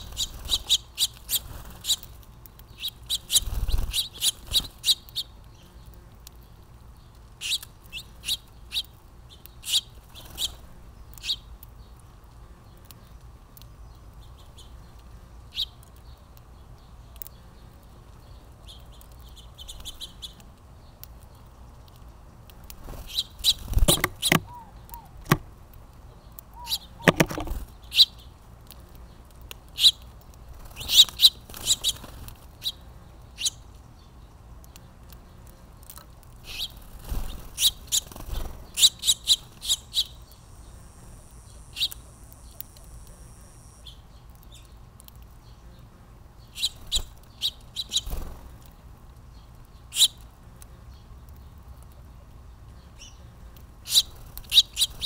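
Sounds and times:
wings fluttering: 0.0 - 5.3, 9.6 - 10.8, 21.8 - 25.6, 26.6 - 28.1, 29.7 - 33.5, 35.0 - 40.2, 46.6 - 48.8, 53.8 - 55.0
finches chirping: 0.0 - 6.0, 7.4 - 12.0, 23.0 - 25.4, 26.1 - 28.3, 30.6 - 34.1, 36.4 - 44.8, 45.4 - 48.8, 49.4 - 50.2, 52.8 - 55.0
thin high buzz: 39.9 - 44.0.

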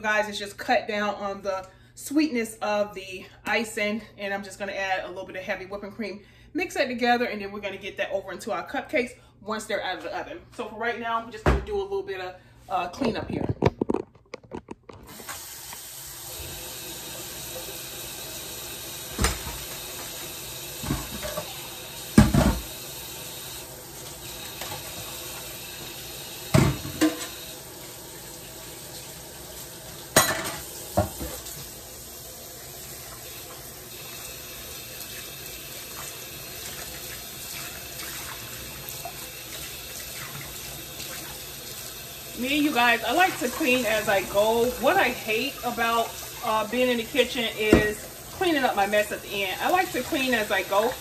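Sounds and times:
faucet running into sink: 15.0 - 51.0.

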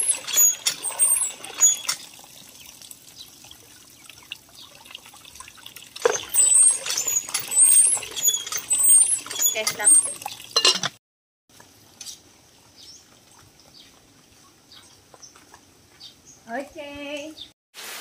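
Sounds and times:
water gushing into metal pot: 0.0 - 10.8
knocks and clinks: 6.0 - 11.0.

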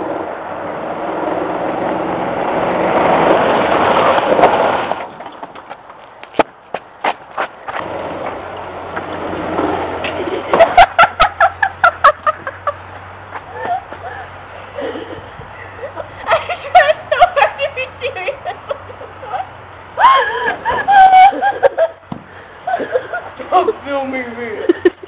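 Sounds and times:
loud rushing noise: 0.0 - 5.2
golf cart humming: 0.0 - 25.0.

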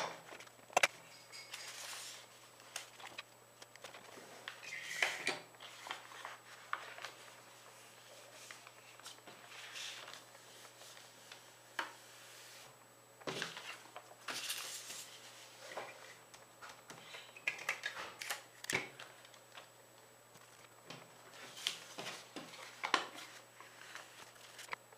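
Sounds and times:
paper rustling and crinkling: 5.6 - 12.7, 13.3 - 16.3, 20.4 - 24.8.

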